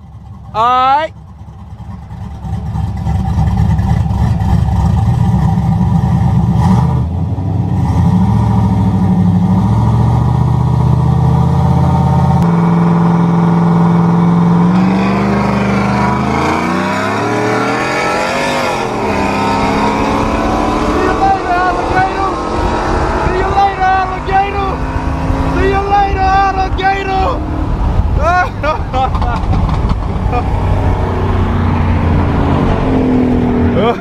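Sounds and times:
other engines rising and falling: 0:01.1 - 0:34.0
car engine revving hard: 0:06.5 - 0:26.4.

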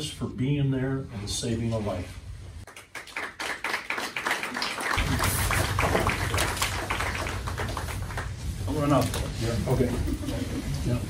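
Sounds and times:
small group applauding: 0:02.6 - 0:08.8.

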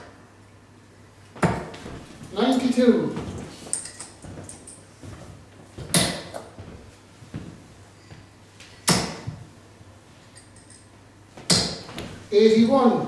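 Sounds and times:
darts thudding into dartboard: 0:01.4 - 0:01.8, 0:05.9 - 0:06.5, 0:08.8 - 0:09.4, 0:11.4 - 0:12.2.

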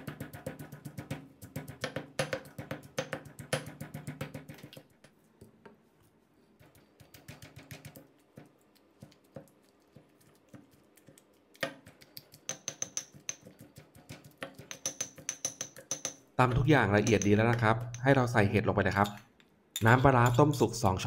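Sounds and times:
pestle pounding in stone mortar: 0:00.0 - 0:04.8, 0:06.6 - 0:08.0, 0:11.7 - 0:18.1.

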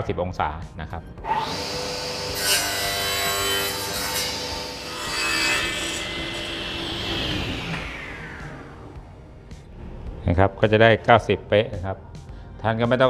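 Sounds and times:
saw blade cutting wood: 0:01.3 - 0:08.9
table saw motor running: 0:01.3 - 0:09.3.

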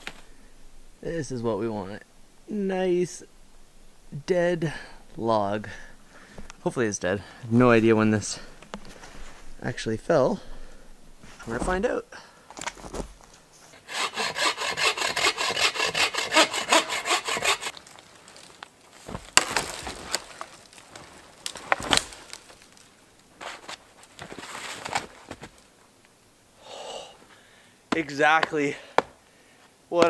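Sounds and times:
log cracking: 0:00.0 - 0:00.9, 0:12.5 - 0:13.4, 0:17.4 - 0:25.7
wood rasping and rubbing: 0:13.8 - 0:17.8.

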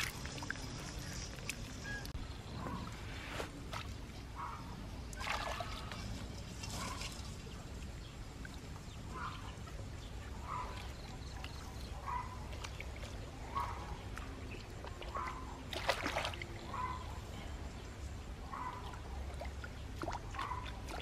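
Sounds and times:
trickling water: 0:00.0 - 0:21.0.

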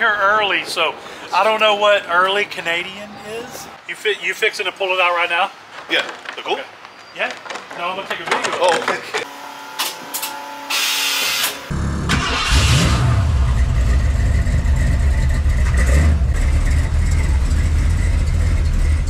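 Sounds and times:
truck engine cranking and starting: 0:10.8 - 0:19.0
truck engine idling: 0:13.3 - 0:19.0.

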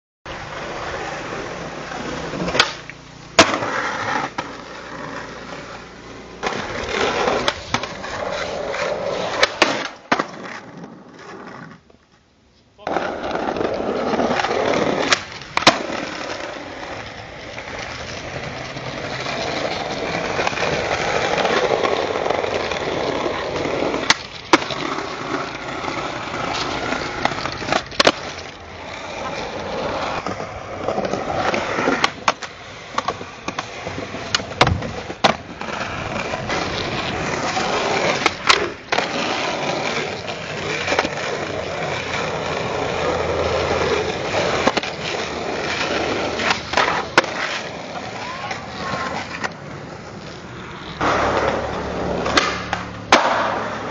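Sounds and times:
skateboard wheels rolling: 0:00.3 - 0:53.9
skateboard wooden clacks: 0:02.4 - 0:04.6, 0:30.1 - 0:42.2, 0:43.7 - 0:53.9.

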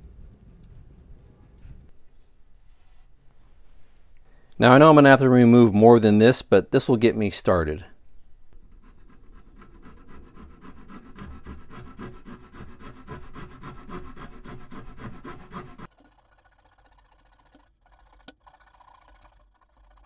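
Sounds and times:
hand saw cutting wood: 0:08.8 - 0:20.0.

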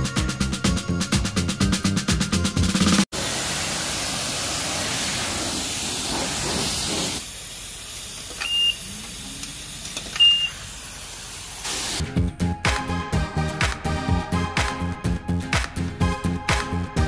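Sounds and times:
high-pressure water spraying: 0:03.1 - 0:12.0
short electronic beeps: 0:08.4 - 0:08.9, 0:10.2 - 0:10.6.

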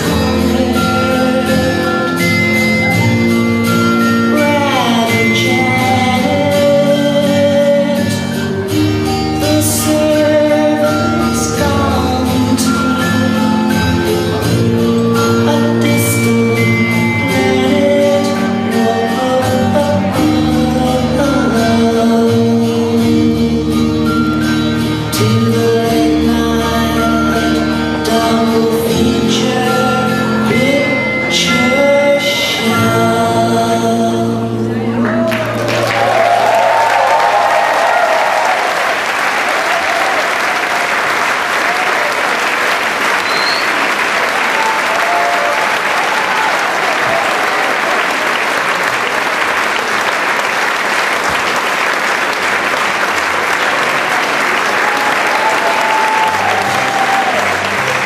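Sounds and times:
song with singing: 0:00.0 - 0:36.9
audience applause: 0:35.0 - 0:58.0.

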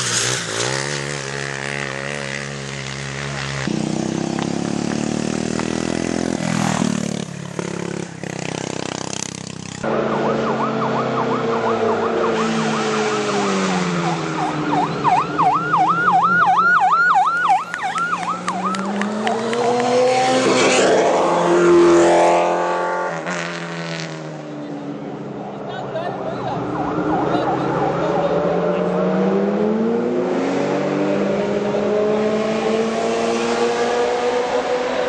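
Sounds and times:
kart engine running hard: 0:00.0 - 0:16.4, 0:17.5 - 0:24.5
siren-like wavering tone: 0:09.8 - 0:19.4.

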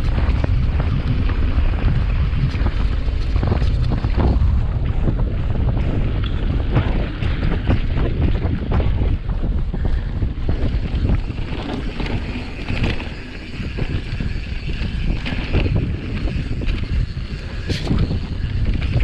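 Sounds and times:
mountain bike rattle and tyre rumble: 0:00.0 - 0:19.0
wind buffeting the microphone: 0:00.0 - 0:19.0.

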